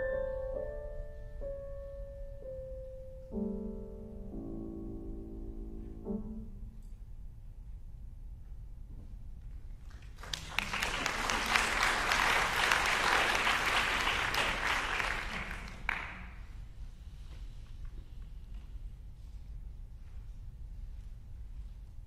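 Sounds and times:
audience applauding: 0:09.9 - 0:16.4.

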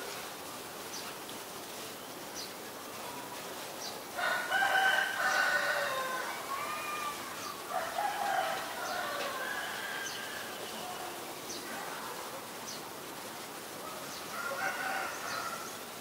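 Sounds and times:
rooster crowing: 0:04.2 - 0:10.9, 0:14.3 - 0:15.8.

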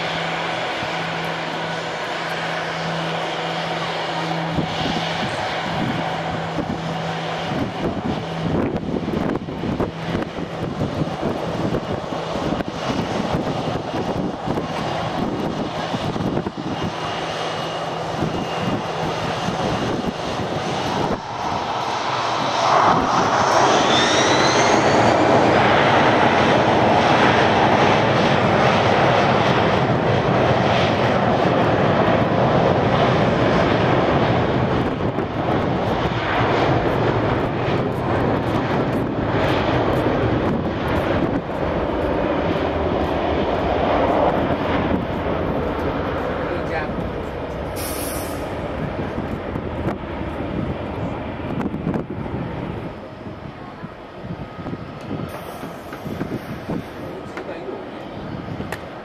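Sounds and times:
jet engines running: 0:00.0 - 0:59.0
jet engines spooling up with whine: 0:00.0 - 0:59.0.

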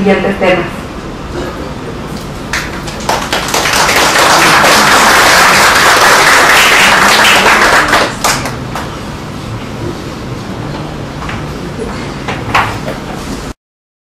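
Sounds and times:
audience applauding: 0:02.5 - 0:08.9.

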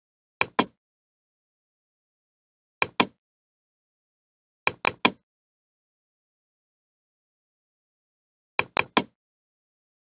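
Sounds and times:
mouse button clicks: 0:00.4 - 0:00.8, 0:02.8 - 0:03.2, 0:08.6 - 0:09.2.

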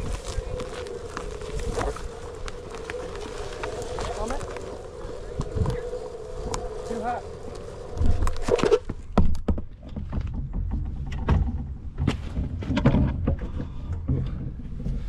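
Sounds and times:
knocks and thumps: 0:08.0 - 0:15.0.

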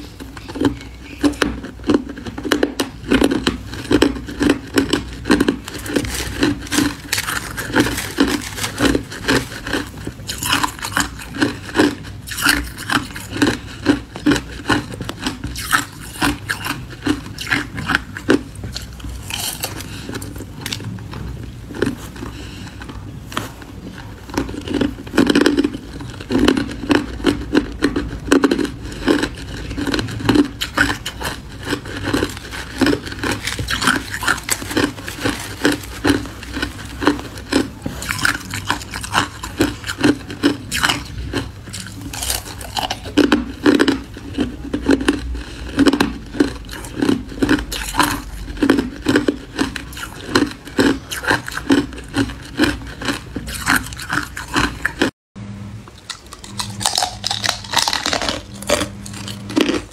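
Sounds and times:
crushed ice crunching: 0:03.3 - 0:20.8, 0:28.5 - 0:43.9.

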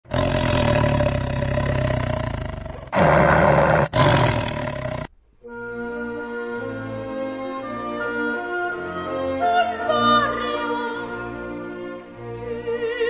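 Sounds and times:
tiger roaring: 0:00.0 - 0:05.1
orchestral music with held notes: 0:05.5 - 0:13.0.

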